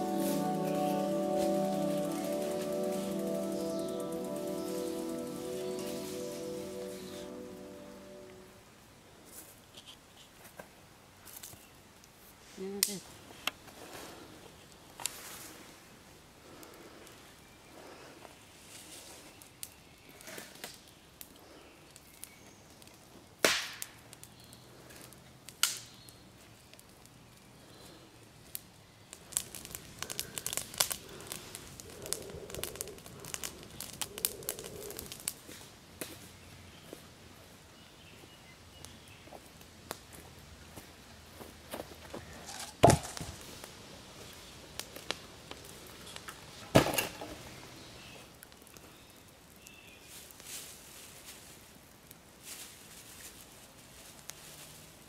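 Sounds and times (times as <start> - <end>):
footsteps: 0.0 - 8.5
campfire crackling: 0.0 - 9.4, 12.8 - 37.8, 38.7 - 55.0
light wood cracks: 19.6 - 27.2, 28.5 - 36.2
dry branches snapping: 23.4 - 24.0, 25.5 - 26.0, 29.2 - 35.4
logs dropped with heavy thud: 42.5 - 43.4, 46.7 - 47.4.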